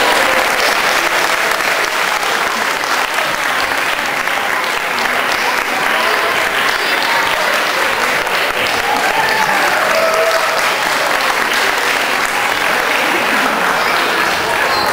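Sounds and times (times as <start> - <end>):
audience applause: 0.0 - 14.9
voices calling out: 6.1 - 14.9.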